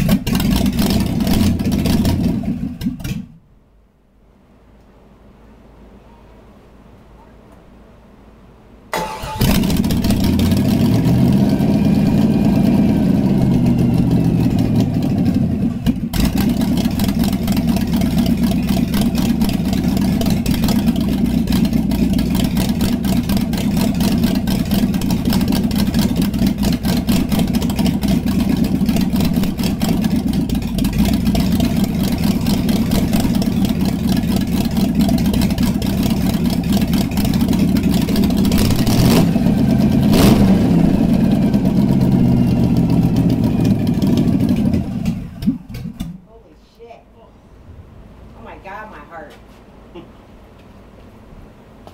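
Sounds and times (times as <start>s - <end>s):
engine starting and revving: 0.0s - 3.4s, 8.9s - 46.2s.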